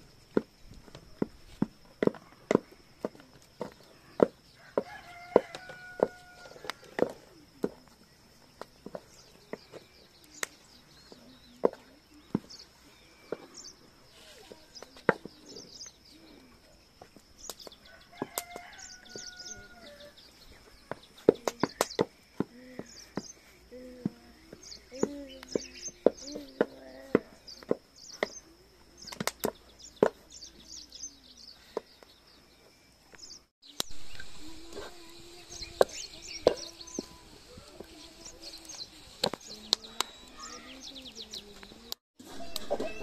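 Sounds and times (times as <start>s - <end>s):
rooster crowing: 4.6s - 7.0s, 17.8s - 20.2s.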